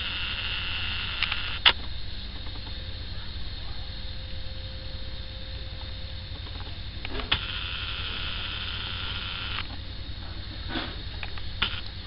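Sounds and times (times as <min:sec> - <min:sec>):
camcorder zoom motor whirring: 0:00.0 - 0:01.8, 0:06.5 - 0:09.8, 0:11.2 - 0:12.0.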